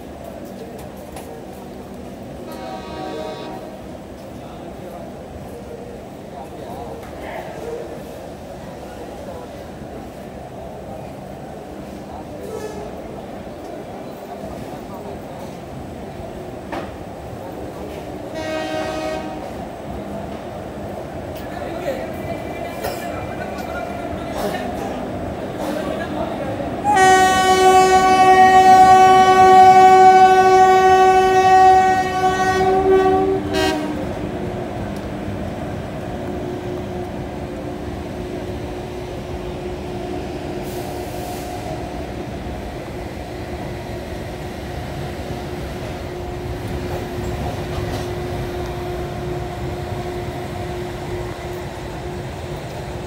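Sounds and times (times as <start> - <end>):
train rolling along track: 0.0 - 53.0
locomotive horn blast: 2.5 - 3.8, 18.3 - 19.6, 26.8 - 34.2.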